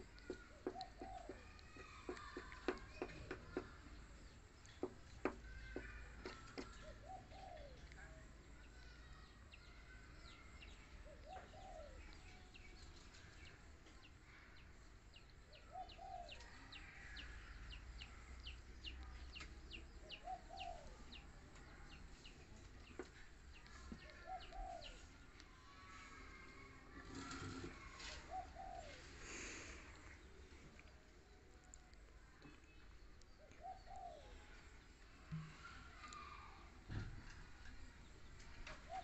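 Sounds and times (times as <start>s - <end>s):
dove cooing: 28.2s - 29.1s, 33.6s - 34.3s.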